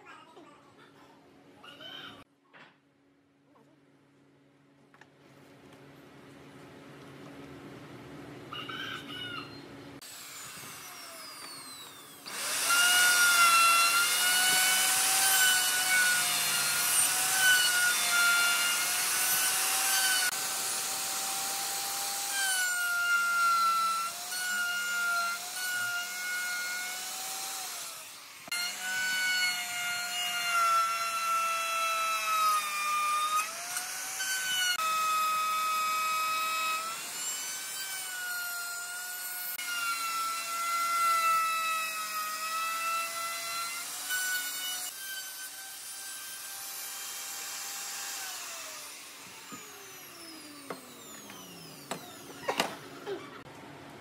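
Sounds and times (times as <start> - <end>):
router motor spinning down: 10.0 - 22.8, 23.5 - 53.2
router cutting wood: 10.0 - 53.4.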